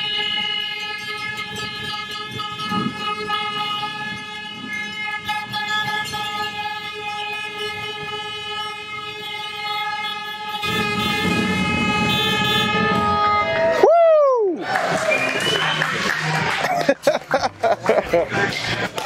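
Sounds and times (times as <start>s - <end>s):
horn blast: 0.0s - 13.9s
crowd noise: 10.8s - 19.0s.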